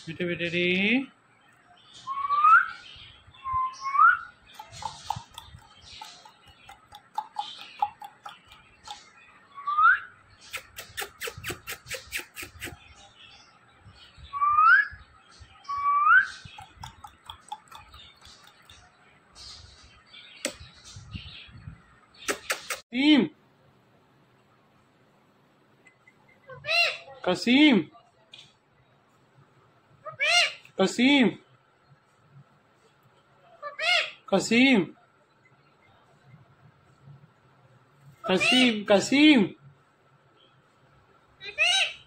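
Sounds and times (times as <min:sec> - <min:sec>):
parakeet chirps: 0:03.6 - 0:13.0, 0:15.6 - 0:18.8
sharp clicks: 0:22.2 - 0:22.8.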